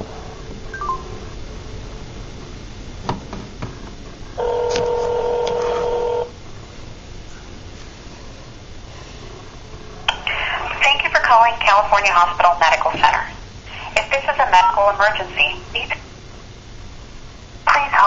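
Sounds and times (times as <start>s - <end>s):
ringback tone: 0.7s - 1.3s, 4.4s - 6.3s.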